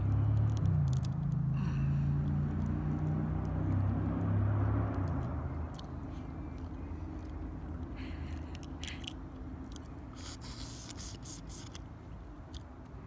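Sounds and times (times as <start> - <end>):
motor vehicle engine running: 0.0 - 10.1.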